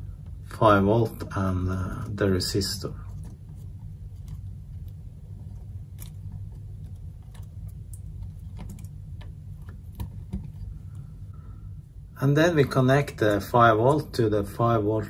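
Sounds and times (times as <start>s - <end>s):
steady low hum: 0.0s - 15.0s
wires clicking into breadboard: 4.2s - 10.6s.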